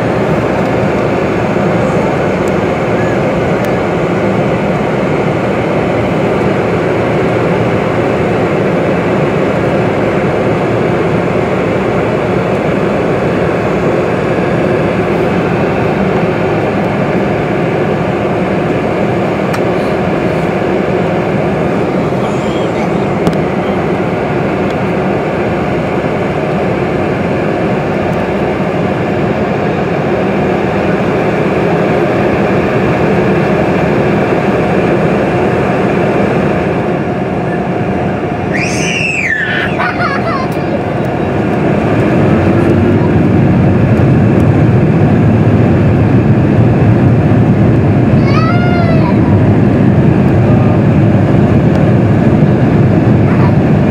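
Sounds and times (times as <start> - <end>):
airliner rolling on taxiway: 0.0 - 53.9
jet engines at low power: 0.0 - 53.9.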